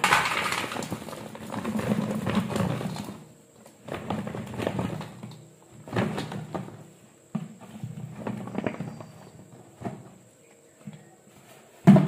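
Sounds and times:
fruit pieces clattering into basket: 0.0s - 6.8s.

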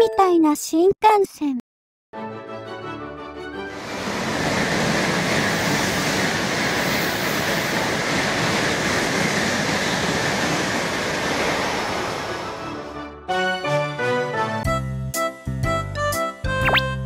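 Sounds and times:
train rushing past: 3.7s - 13.0s.

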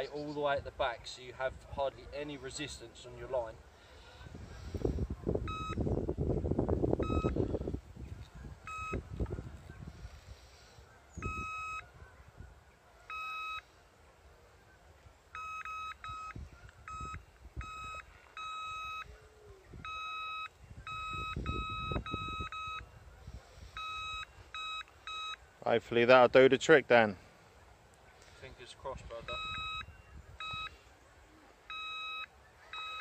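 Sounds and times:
electronic bite alarm beeps: 5.4s - 5.9s, 7.0s - 7.5s, 8.6s - 9.1s, 11.2s - 11.9s, 13.1s - 13.7s, 15.4s - 19.1s, 19.8s - 22.9s, 23.7s - 25.5s, 29.2s - 30.8s, 31.7s - 33.0s.

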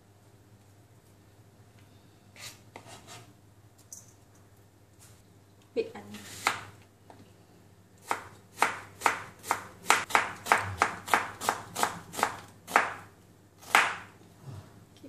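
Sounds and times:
knife chopping onion on board: 6.4s - 6.7s, 8.0s - 14.1s.

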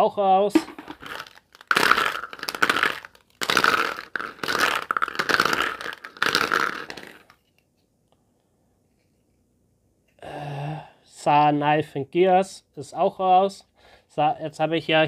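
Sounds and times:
plastic capsules rattling in bowl: 0.6s - 7.5s.

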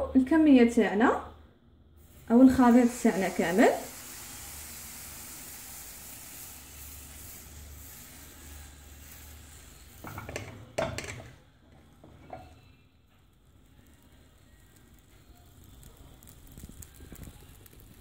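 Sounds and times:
batter sizzling in frying pan: 2.0s - 18.0s
kitchen utensil clatter: 10.0s - 11.4s.

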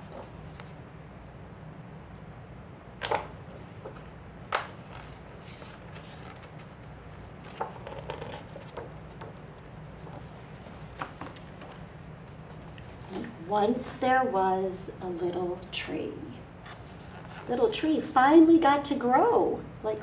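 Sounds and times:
paper rustling: 0.0s - 0.8s, 3.0s - 13.4s, 16.6s - 17.5s
low room hum: 0.0s - 20.0s
paper page snapping: 4.5s - 8.9s.

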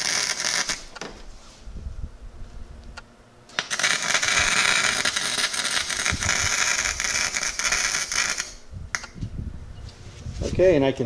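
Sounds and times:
welding arc crackling: 0.0s - 1.1s, 3.5s - 9.2s.

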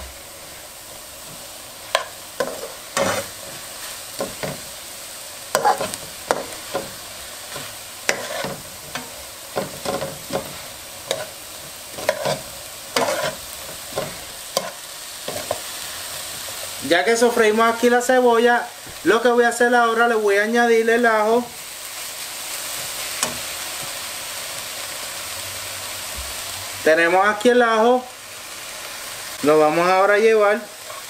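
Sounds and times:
onions sizzling in oil: 0.0s - 31.0s
spoon scraping pot: 5.5s - 6.9s, 7.5s - 15.7s.

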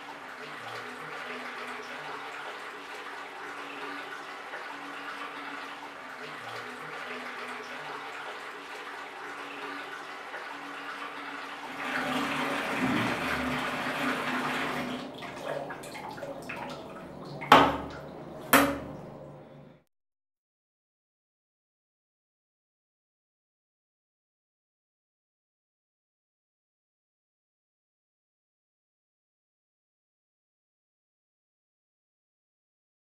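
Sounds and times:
knife rinsed under water: 0.0s - 19.6s
tap water running into basin: 0.0s - 19.6s
sharp loud knocks: 17.5s - 18.9s.

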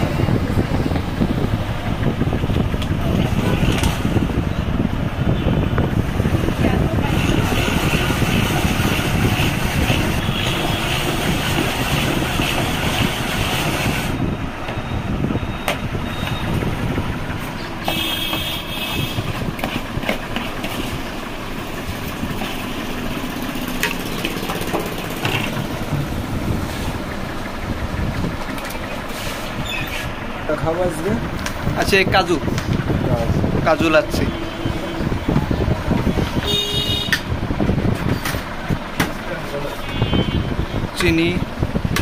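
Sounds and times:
low steady rumble: 0.0s - 42.0s
ice-shaving machine grinding ice: 7.0s - 14.2s, 23.5s - 25.8s.

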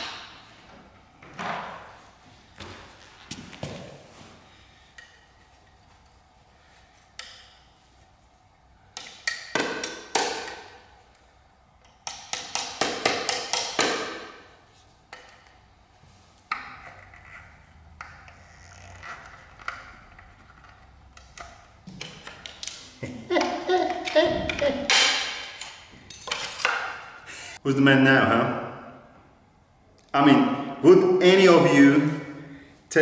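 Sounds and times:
hand tool tapping metal rivets: 11.8s - 14.2s.

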